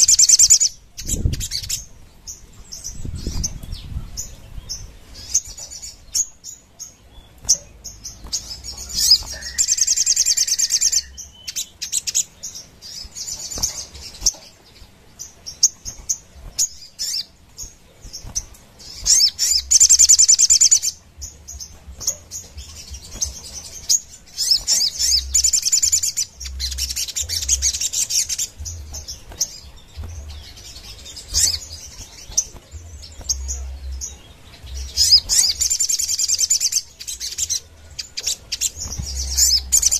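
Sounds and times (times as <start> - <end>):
bird chirps: 0.0 - 39.9
bird singing rattling trills: 0.0 - 39.9.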